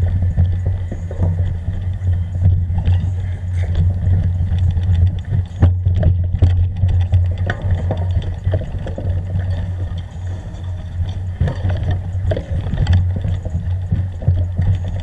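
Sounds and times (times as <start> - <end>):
low engine drone: 0.0 - 15.0
vehicle rattles and knocks: 0.0 - 15.0.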